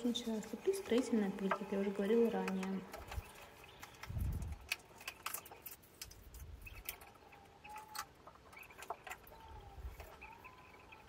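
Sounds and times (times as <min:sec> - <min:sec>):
faint squeak: 0:06.6 - 0:11.0.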